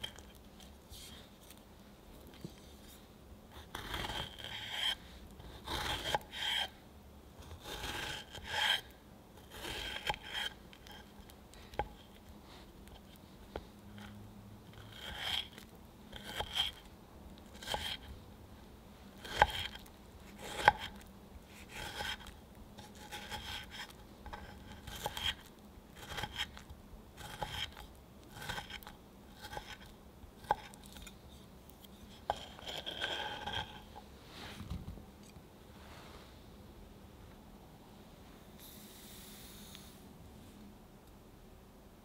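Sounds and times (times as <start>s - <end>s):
knife slicing strawberries: 3.6s - 6.7s, 14.8s - 18.1s, 19.2s - 31.2s.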